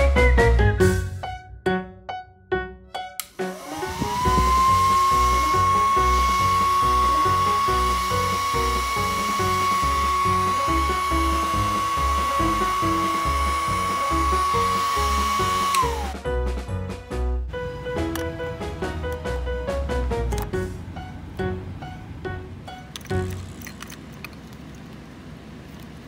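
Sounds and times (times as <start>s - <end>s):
background music with steady beat: 0.0s - 23.3s
electric air pump motor whining: 3.2s - 16.3s.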